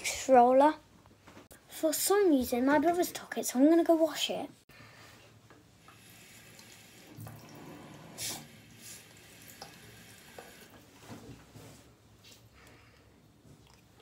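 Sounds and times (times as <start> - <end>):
tap running into sink: 9.5 - 10.8.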